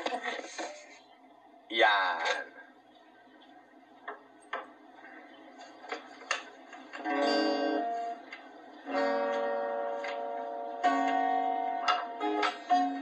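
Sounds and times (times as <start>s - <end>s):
acoustic guitar chord strummed: 7.0s - 13.0s
guitar clicks: 8.3s - 12.9s.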